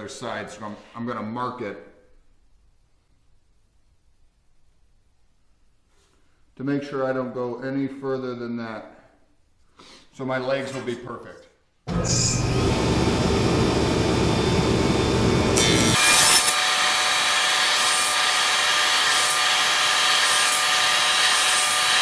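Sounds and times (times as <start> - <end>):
table saw cutting wood: 11.9 - 22.0
table saw whine: 11.9 - 22.0.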